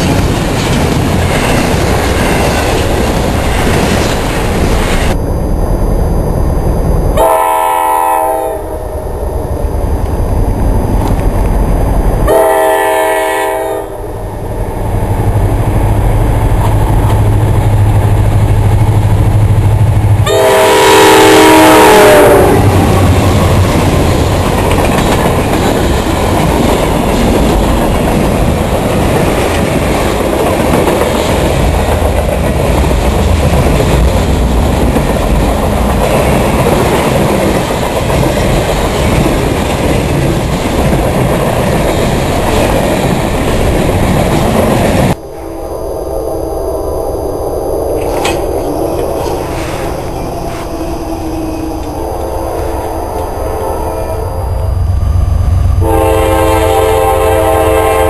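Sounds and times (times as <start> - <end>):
diesel locomotive engine humming: 0.0 - 58.0
train air horn: 7.2 - 8.9, 12.3 - 14.2, 20.2 - 22.8, 51.0 - 54.8, 55.8 - 58.0.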